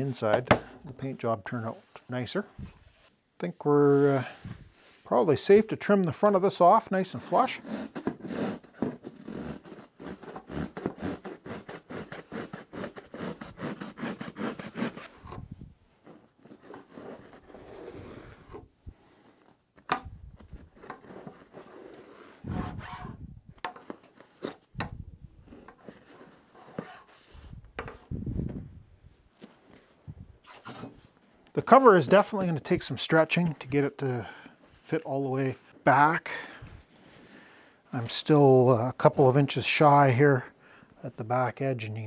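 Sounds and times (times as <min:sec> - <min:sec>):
foam rubbing and scraping: 0:07.3 - 0:19.5, 0:20.6 - 0:23.4
knife sawing through foam: 0:07.6 - 0:15.2.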